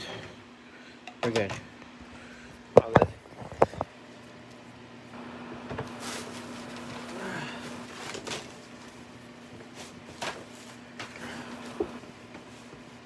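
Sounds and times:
plastic bags and papers rustling: 5.8s - 13.0s.

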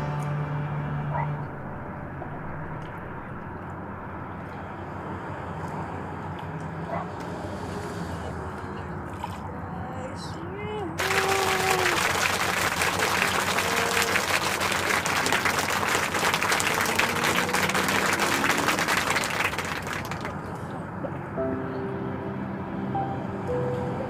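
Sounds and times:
background music with sustained notes: 0.0s - 4.0s, 21.3s - 24.0s
crowd clapping: 11.0s - 20.6s.

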